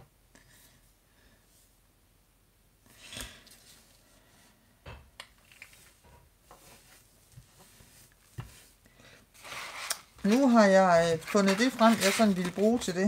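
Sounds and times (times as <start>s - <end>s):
paper rustling: 9.4s - 13.0s.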